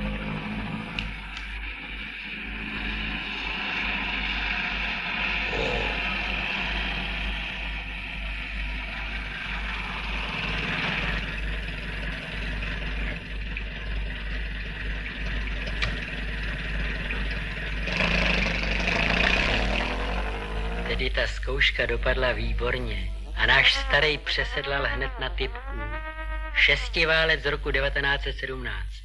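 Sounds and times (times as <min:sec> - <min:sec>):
film soundtrack hum: 0:00.0 - 0:29.0
old car engine running: 0:08.7 - 0:21.2.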